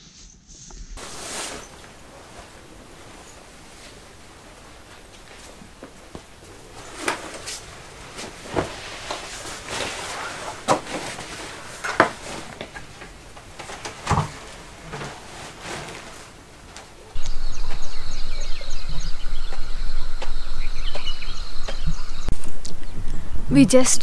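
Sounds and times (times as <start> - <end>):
footsteps: 0.6 - 22.5
backpacks being handled: 1.0 - 19.5.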